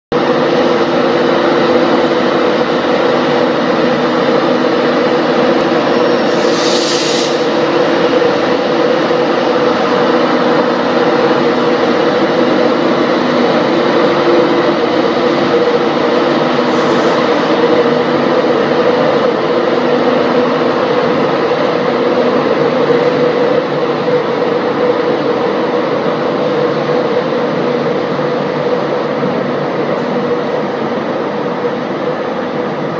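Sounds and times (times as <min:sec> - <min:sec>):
electric locomotive drone: 0:00.1 - 0:32.9
brief hisses: 0:06.3 - 0:07.6, 0:16.7 - 0:17.5.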